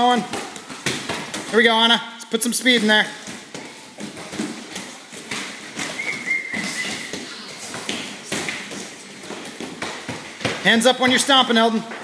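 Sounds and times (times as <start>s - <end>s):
bare feet thudding on mats: 2.6s - 12.0s.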